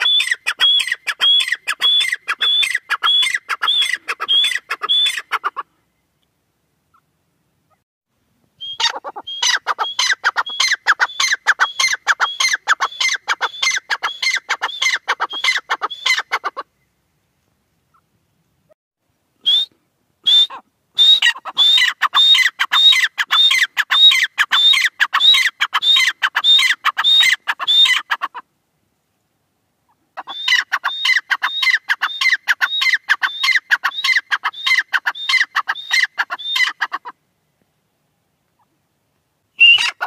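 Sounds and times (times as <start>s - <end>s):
francolin calling: 0.0s - 5.6s, 8.6s - 16.8s, 19.4s - 28.3s, 29.9s - 37.1s, 39.6s - 40.0s.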